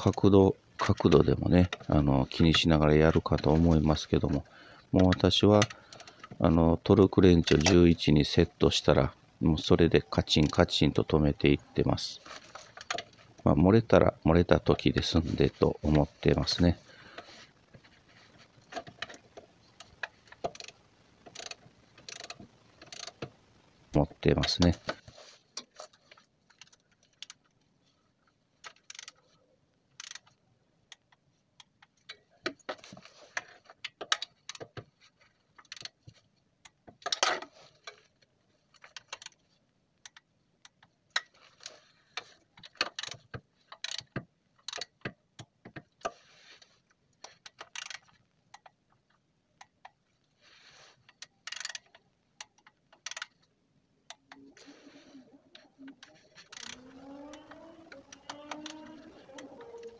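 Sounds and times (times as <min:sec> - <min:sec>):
torque wrench clicks: 0:19.8 - 0:23.3, 0:28.6 - 0:29.2, 0:30.0 - 0:32.2, 0:35.6 - 0:36.0, 0:42.8 - 0:45.5, 0:47.5 - 0:48.7, 0:51.1 - 0:53.4, 0:56.5 - 0:59.9
rapid ratchet ticking: 0:19.8 - 0:23.4, 0:28.6 - 0:29.2, 0:30.0 - 0:31.0, 0:42.8 - 0:45.5, 0:47.5 - 0:48.2, 0:51.1 - 0:53.4, 0:56.5 - 0:59.9.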